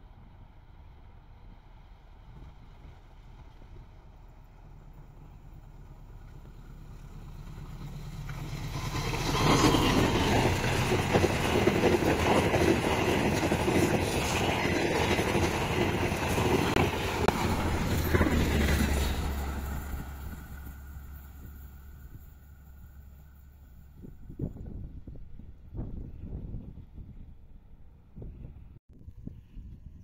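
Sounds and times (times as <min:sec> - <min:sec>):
train passing at speed: 0:00.0 - 0:28.0
wheels clattering over rail joints: 0:04.9 - 0:21.5.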